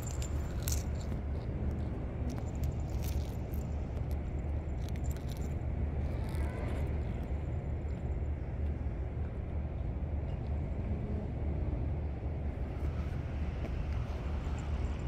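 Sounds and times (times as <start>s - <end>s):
collar tag jingling: 0.0s - 1.2s
low outdoor rumble: 0.0s - 15.0s.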